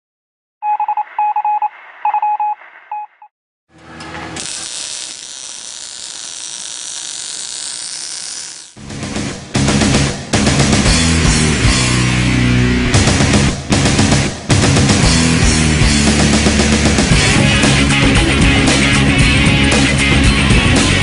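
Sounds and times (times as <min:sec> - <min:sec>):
electronic beeps: 0:00.6 - 0:03.3
heavy rock music: 0:08.8 - 0:21.0.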